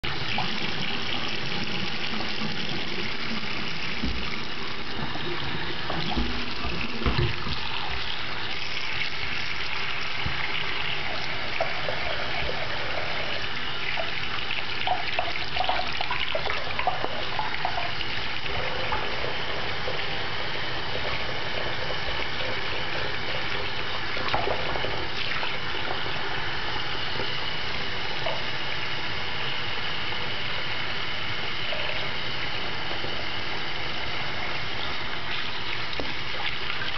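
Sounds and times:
tap water running into basin: 0.0 - 36.9.

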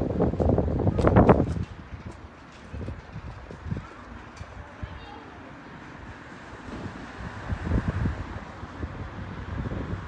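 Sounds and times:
footsteps on pavement: 0.1 - 5.0.

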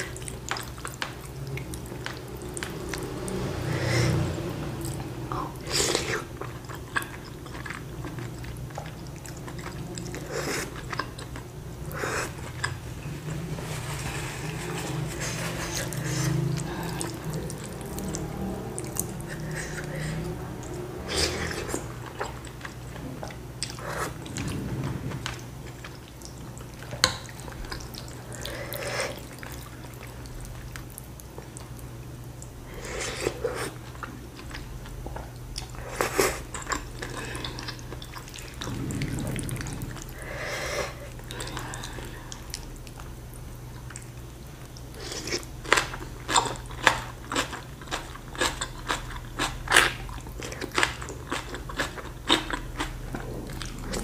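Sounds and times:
noodles slurped and chewed: 0.0 - 54.0
low hum: 6.3 - 28.6, 36.6 - 44.8.

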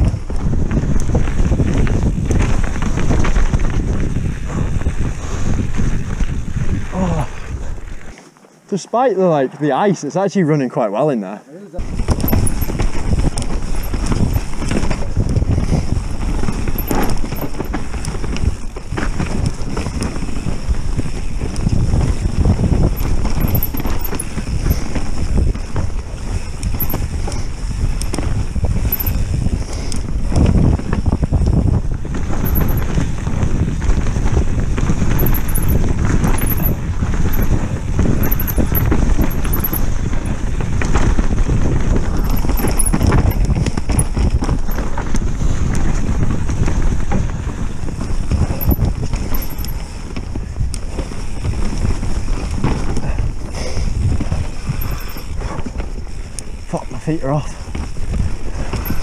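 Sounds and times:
wind noise: 0.0 - 8.2, 11.7 - 59.0
mount rattling over bumps: 11.8 - 20.2, 22.0 - 29.2, 32.1 - 33.0, 35.0 - 45.2, 46.8 - 50.0, 54.3 - 55.9, 58.5 - 59.0
tyre noise: 11.8 - 56.9, 57.5 - 59.0.

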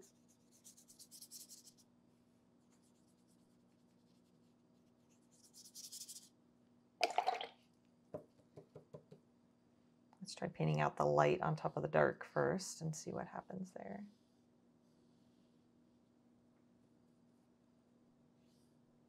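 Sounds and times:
paintbrush swishing on paper: 0.0 - 1.9, 2.6 - 6.3.

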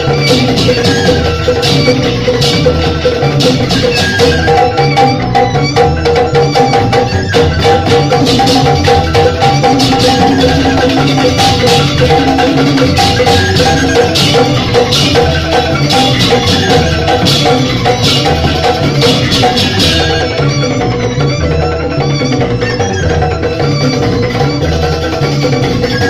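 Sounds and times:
bamboo flute: 0.0 - 26.0
bamboo xylophones striking: 0.0 - 26.0
drum: 0.0 - 26.0.

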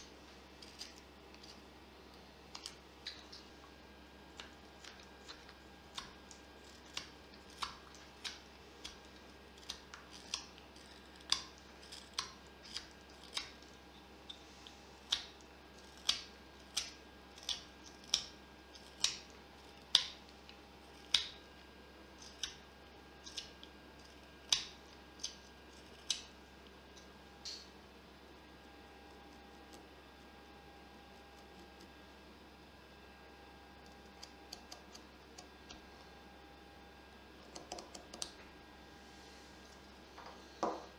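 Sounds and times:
knife carving wood shavings: 0.6 - 1.6, 4.4 - 20.2, 23.2 - 26.4.

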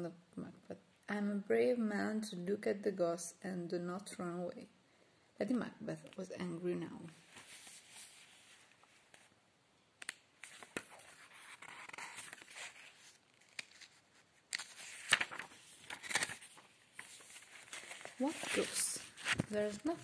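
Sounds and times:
rustling: 7.1 - 9.4, 10.1 - 20.0.

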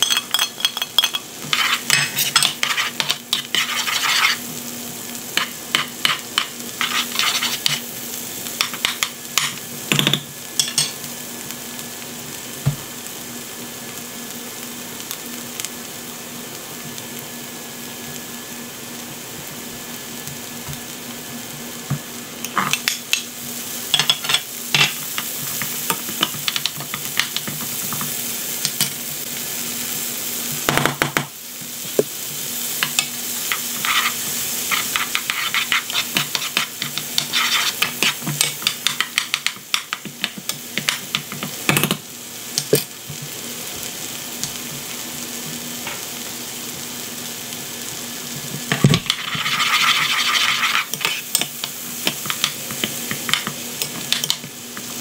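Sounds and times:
vegetables sizzling in a pan: 0.0 - 55.0
spatula scraping a pan: 1.5 - 4.5, 6.8 - 7.9, 33.5 - 38.3, 49.0 - 53.9
knocks against a pan: 30.7 - 31.3.

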